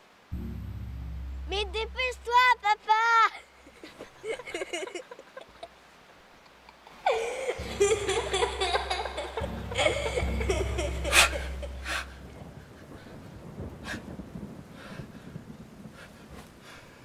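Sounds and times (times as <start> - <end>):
low sustained music notes: 0.0 - 2.7, 7.1 - 14.5
girl laughing: 3.3 - 5.8, 7.0 - 12.2
woman laughing: 3.6 - 5.8, 6.4 - 12.1.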